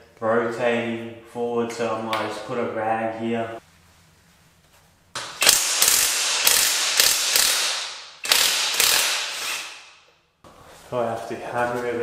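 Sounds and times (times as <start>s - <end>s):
ratchet wrench clicking: 5.4s - 9.8s.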